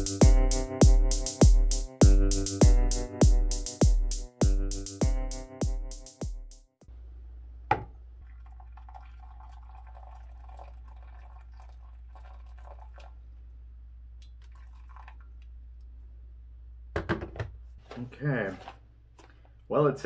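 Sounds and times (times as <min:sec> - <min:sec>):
water pouring into glass cup: 0:08.2 - 0:13.2, 0:14.4 - 0:15.4.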